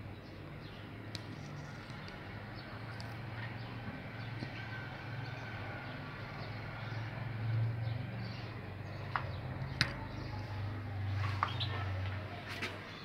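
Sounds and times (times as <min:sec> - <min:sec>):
faint bird twittering: 0:07.8 - 0:12.0
finches chirping: 0:11.4 - 0:11.9.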